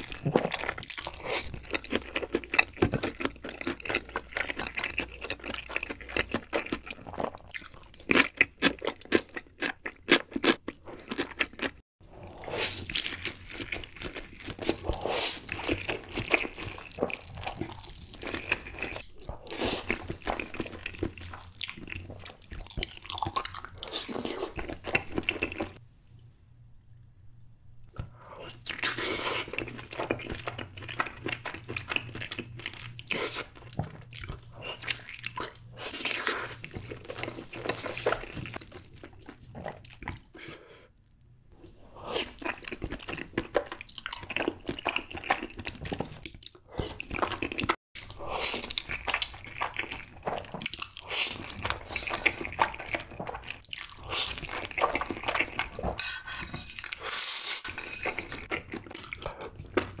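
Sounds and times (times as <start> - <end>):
wet chewing: 42.2 - 60.0.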